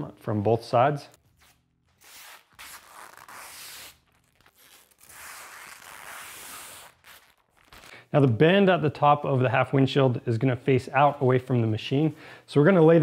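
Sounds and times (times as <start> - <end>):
plastic film peeling: 1.1 - 8.1.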